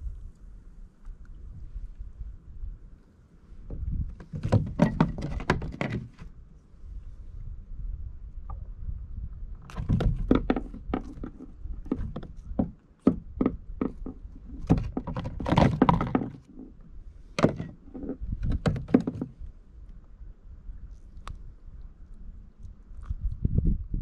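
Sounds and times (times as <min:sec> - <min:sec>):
fishing gear knocking and clicking: 0:09.7 - 0:16.7.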